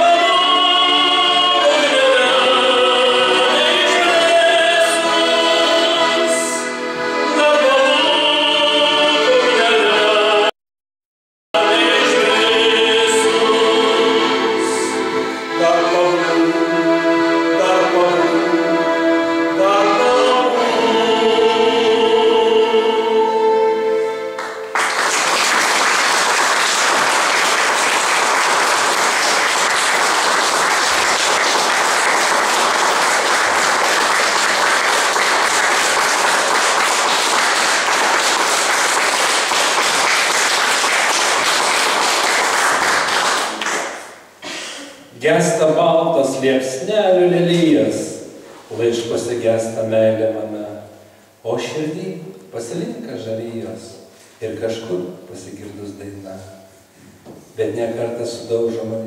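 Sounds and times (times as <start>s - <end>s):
men's choir singing chords: 0.0s - 10.5s, 11.6s - 24.2s
audience applause: 24.4s - 44.1s.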